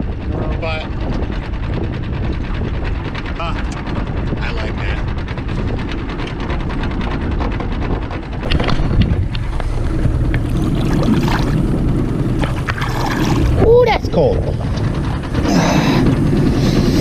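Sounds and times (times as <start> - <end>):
outboard motor running: 0.0 - 17.0
wind buffeting microphone: 0.0 - 17.0
water splashing: 8.4 - 14.0.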